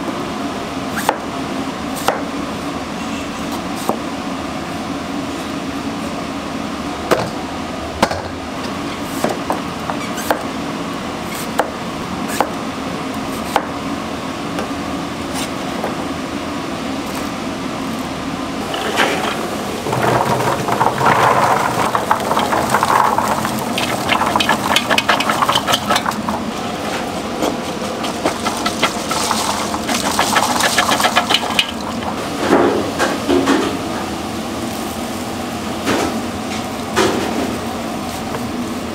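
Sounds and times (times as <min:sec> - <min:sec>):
steady hum: 0:10.5 - 0:38.9
rustling and clattering: 0:18.6 - 0:33.7.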